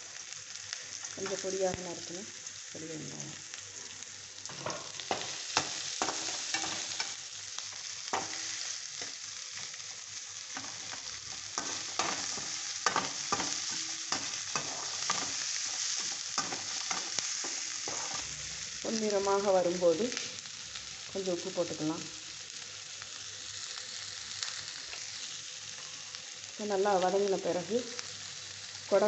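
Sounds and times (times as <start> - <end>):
vegetables sizzling in oil: 0.0 - 29.0
metal spoon scraping and clinking pan: 4.5 - 7.2, 11.6 - 15.4.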